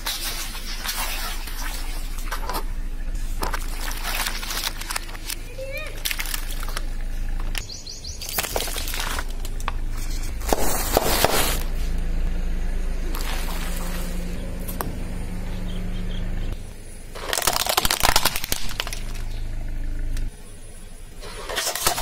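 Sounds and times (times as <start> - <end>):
car engine running low: 0.0 - 22.0
tyre crushing objects: 8.2 - 11.8.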